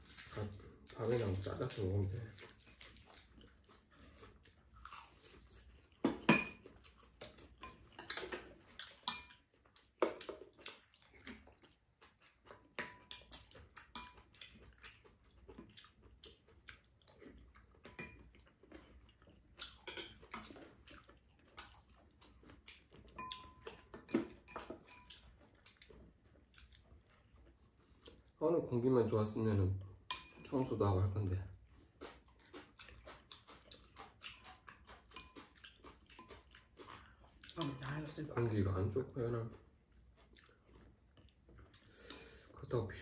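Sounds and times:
chewing: 0.0s - 28.6s, 29.3s - 43.0s
chopsticks and spoons clinking bowls: 0.1s - 3.3s, 4.0s - 10.8s, 12.4s - 16.0s, 17.8s - 19.0s, 19.6s - 21.7s, 22.4s - 25.4s, 30.0s - 31.2s, 32.0s - 39.6s.

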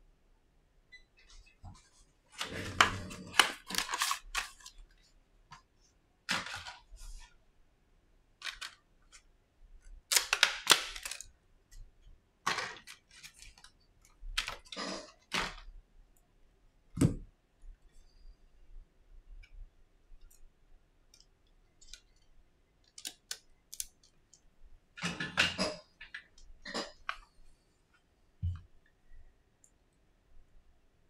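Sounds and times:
plastic packaging clicking and crackling: 2.8s - 4.9s, 8.4s - 9.2s, 10.0s - 11.4s.

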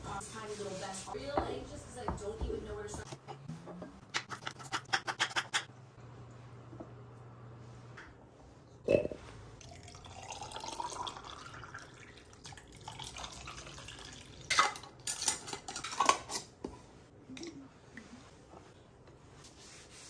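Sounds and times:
water pouring into glass jar: 9.6s - 14.4s.

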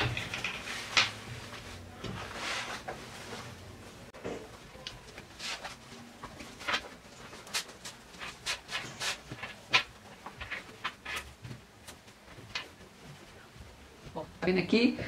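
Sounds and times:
fabric rustling and swishing: 0.6s - 4.1s.

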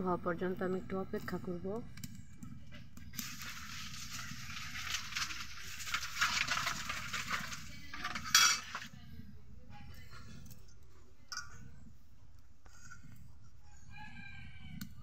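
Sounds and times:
oil sizzling and crackling: 2.9s - 8.9s.

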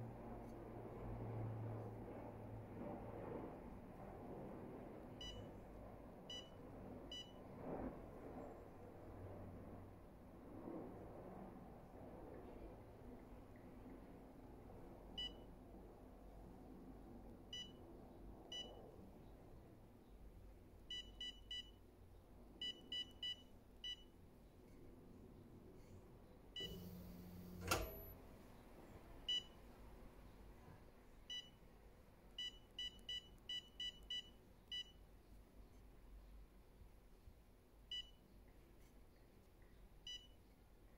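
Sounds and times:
touchscreen key-press beeps: 32.4s - 34.9s, 40.1s - 40.4s.

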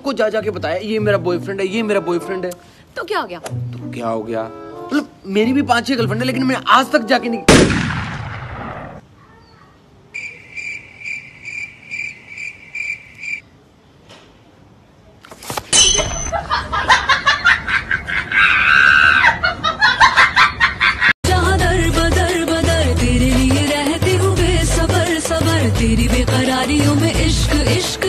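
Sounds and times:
cricket chirps: 10.1s - 13.5s
loud laughter: 16.3s - 21.1s.

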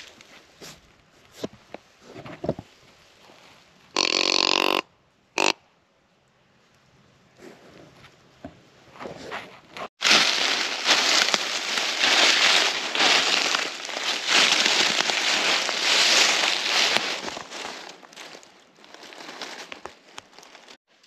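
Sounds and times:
footsteps crunching through dry leaves: 9.9s - 21.0s.

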